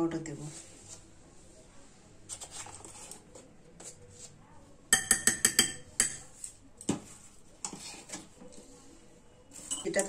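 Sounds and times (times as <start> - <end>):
spoon clinking on bowl: 4.9 - 6.3.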